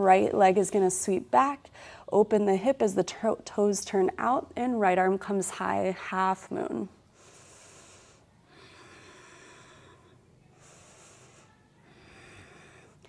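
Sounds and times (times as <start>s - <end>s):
person breathing slowly: 7.0s - 13.0s.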